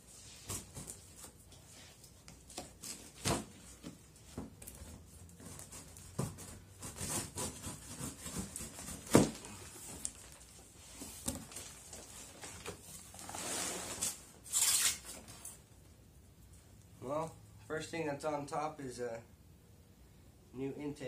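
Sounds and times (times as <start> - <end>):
cardboard flaps scraping: 0.1 - 15.6
knife cutting packing tape: 4.8 - 10.2, 13.3 - 15.5.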